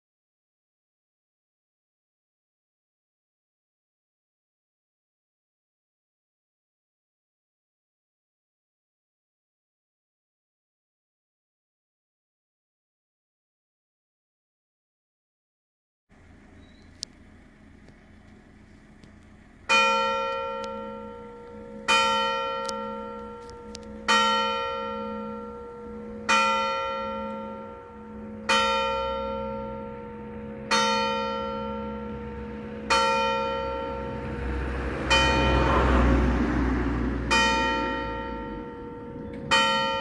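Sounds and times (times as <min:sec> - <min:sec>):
church bell tolling: 0:19.7 - 0:40.0.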